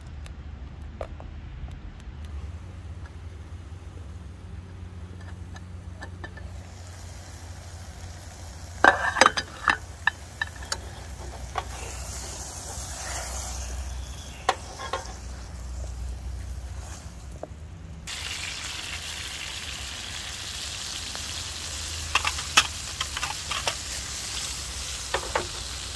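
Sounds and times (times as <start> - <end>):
steady low hum: 0.0 - 18.1
vegetables sizzling in a pot: 5.9 - 17.5, 18.1 - 25.9.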